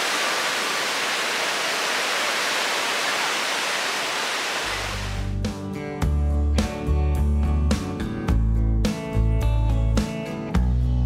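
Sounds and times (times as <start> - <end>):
ocean surf breaking: 0.0 - 5.3.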